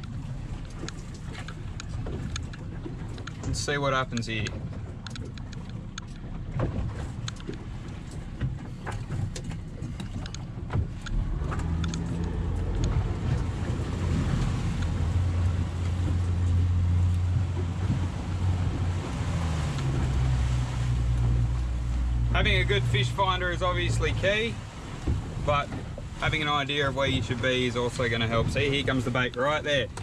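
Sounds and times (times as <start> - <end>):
boat engine humming: 0.0 - 30.0
water noise: 0.0 - 30.0
wind: 0.0 - 30.0.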